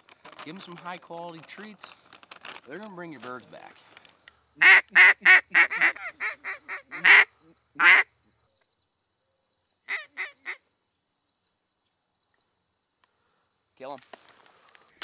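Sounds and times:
insect buzz: 0:01.6 - 0:15.0
duck call quacks: 0:04.6 - 0:08.1, 0:09.9 - 0:10.6.

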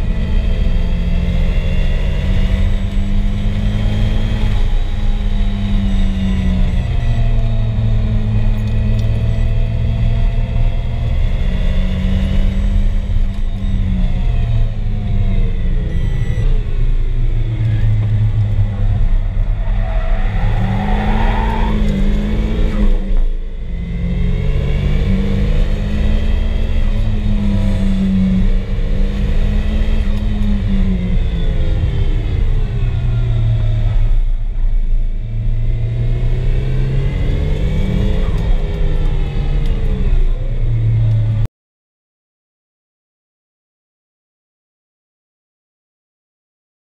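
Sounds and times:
turbocharged engine revving: 0:15.6 - 0:32.5.

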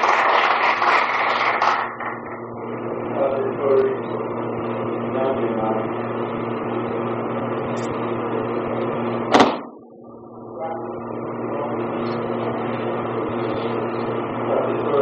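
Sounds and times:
electrical hum: 0:00.0 - 0:15.0
sharp knock: 0:09.3 - 0:09.8.

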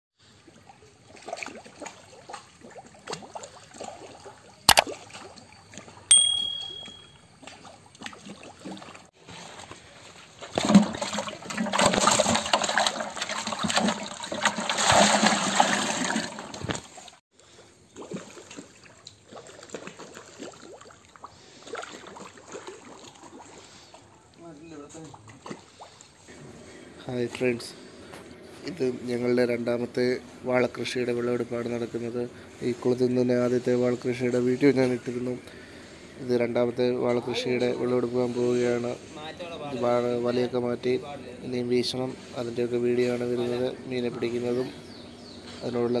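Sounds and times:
sharp clicks: 0:04.7 - 0:04.9
short ding: 0:06.1 - 0:07.2
fish thrashing in bucket of water: 0:07.4 - 0:17.2.

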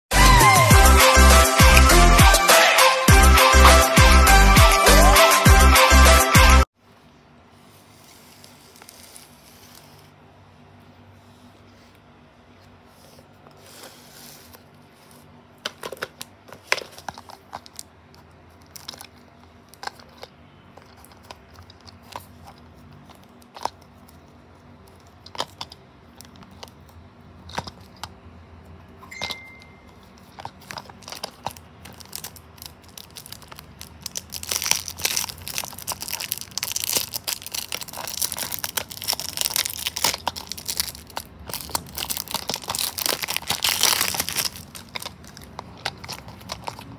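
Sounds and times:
cardboard crinkling and tearing: 0:30.4 - 0:46.9.

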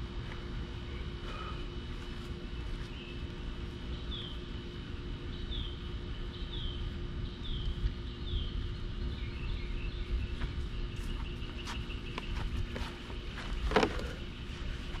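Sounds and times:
bird chirping: 0:02.5 - 0:14.3.

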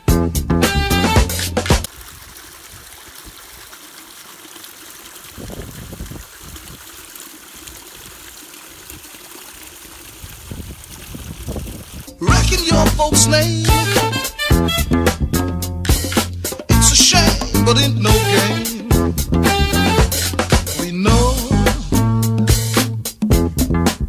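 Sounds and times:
music: 0:00.0 - 0:01.9, 0:12.1 - 0:24.0
small water splashes: 0:01.7 - 0:12.2
water trickling over rocks: 0:01.8 - 0:12.2.

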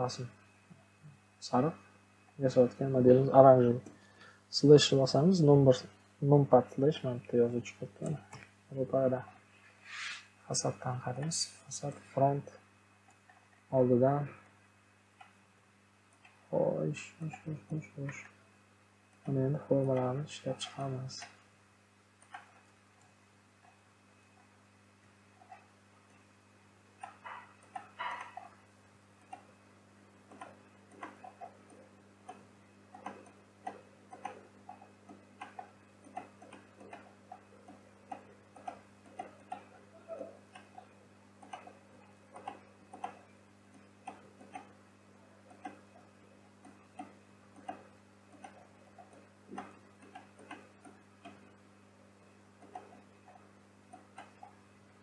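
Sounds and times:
steady low hum: 0:00.0 - 0:55.0
computer mouse and keyboard clicks: 0:22.2 - 0:23.8, 0:27.0 - 0:28.6, 0:29.2 - 0:29.5, 0:30.3 - 0:44.8, 0:45.5 - 0:51.6, 0:52.6 - 0:54.6.

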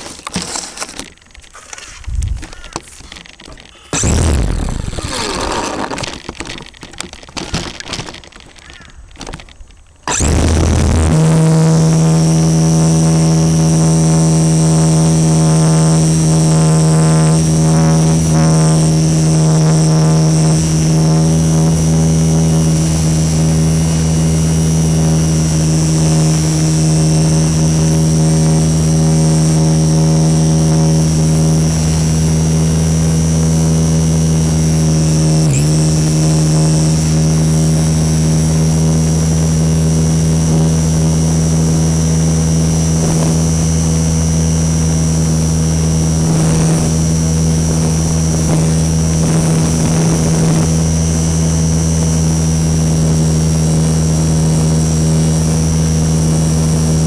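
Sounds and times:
model plane motor buzzing: 0:00.0 - 0:57.0
rustling and knocks: 0:05.4 - 0:09.8.

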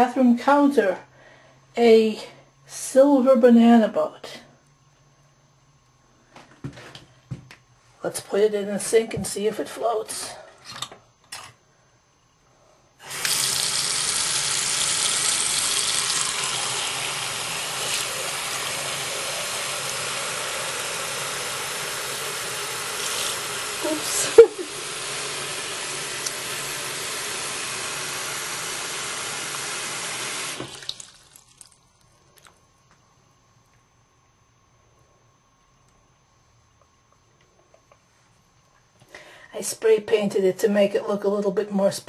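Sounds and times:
tap water pouring into sink: 0:13.1 - 0:23.8, 0:24.4 - 0:31.8.

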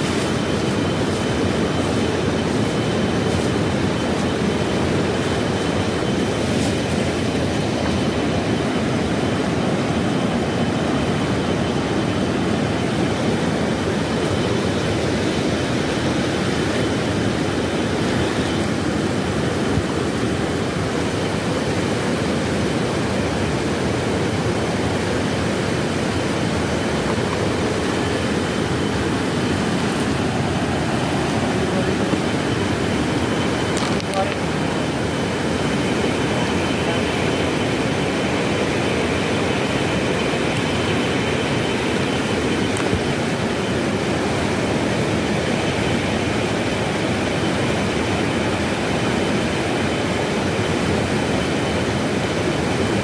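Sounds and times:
river roaring: 0:00.0 - 0:53.0.

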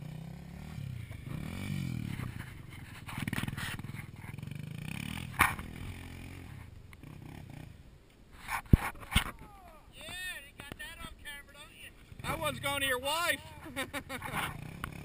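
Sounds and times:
quad engine revving: 0:00.0 - 0:02.4, 0:03.2 - 0:07.8, 0:13.6 - 0:15.0.

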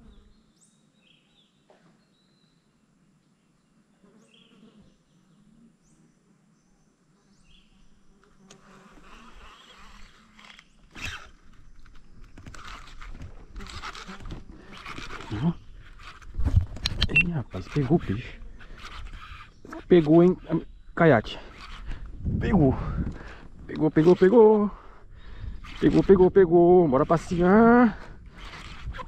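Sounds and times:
rustling and clattering handling noise: 0:08.2 - 0:20.4
high bird chirps: 0:17.0 - 0:17.4.

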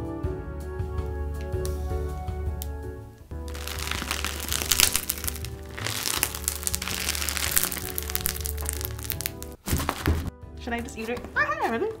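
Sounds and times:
background music: 0:00.0 - 0:12.0
crunchy slime crackling: 0:03.5 - 0:10.1.

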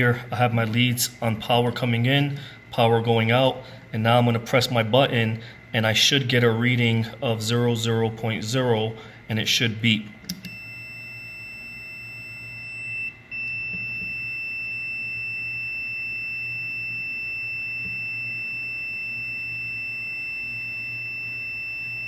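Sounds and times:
continuity buzzer high beep: 0:10.4 - 0:22.0.

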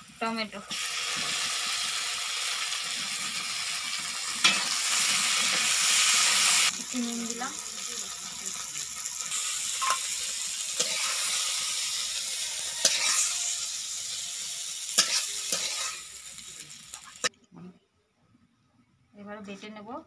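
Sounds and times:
vegetables sizzling in oil: 0:00.0 - 0:17.3
metal spatula scraping pan: 0:10.8 - 0:14.3.

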